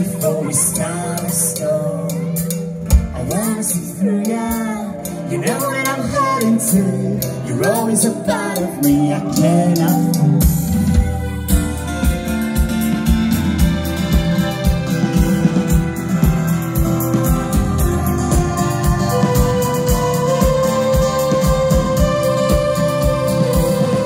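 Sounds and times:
person singing: 0:00.0 - 0:11.8
live band playing: 0:00.0 - 0:24.0.

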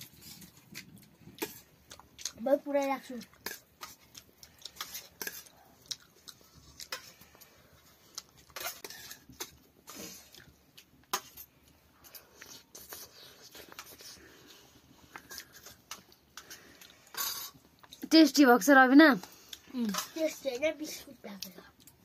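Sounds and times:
person chewing: 0:00.0 - 0:02.4, 0:03.1 - 0:18.0, 0:21.6 - 0:22.0
metal spoon scraping steel plate: 0:08.6 - 0:09.5.

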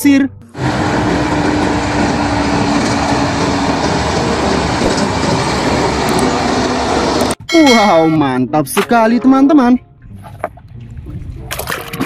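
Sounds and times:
dump truck engines rumbling: 0:00.5 - 0:07.4.

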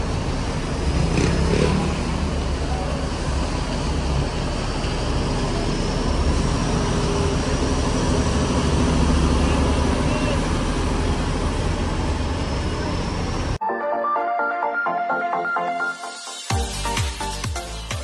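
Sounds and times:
diesel engine idling: 0:00.0 - 0:13.6.

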